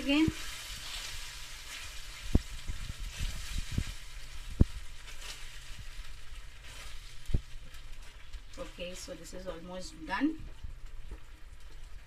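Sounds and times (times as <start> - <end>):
faint sizzle: 0.0 - 12.0.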